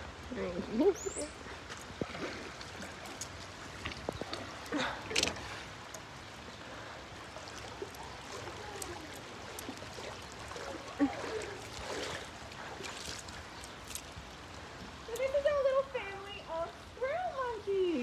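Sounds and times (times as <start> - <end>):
running water: 0.0 - 18.0
boots splashing through water: 1.5 - 6.2, 7.1 - 14.9.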